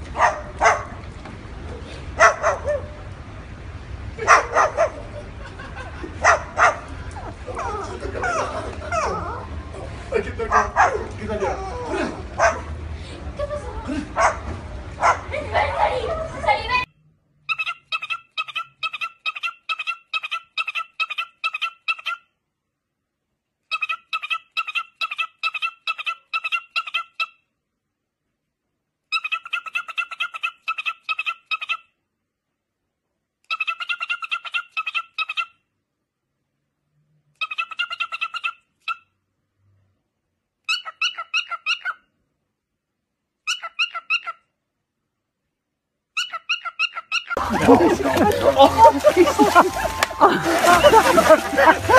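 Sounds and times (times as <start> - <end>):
cockatiel calling: 40.7 - 42.0, 43.4 - 44.4, 46.2 - 47.4.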